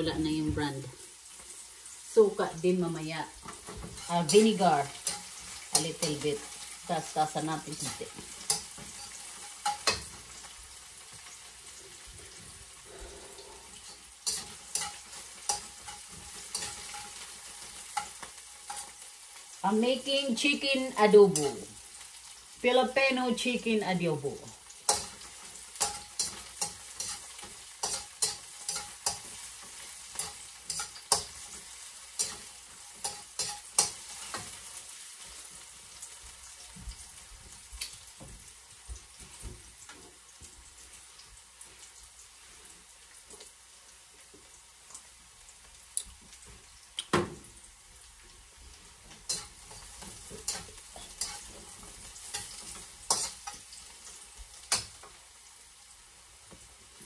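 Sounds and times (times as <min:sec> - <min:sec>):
garlic and onion sizzling in oil: 0:00.0 - 0:57.0
metal spatula scraping a pan: 0:03.4 - 0:10.8, 0:11.9 - 0:19.6, 0:20.4 - 0:22.4, 0:24.7 - 0:35.7, 0:48.7 - 0:55.1.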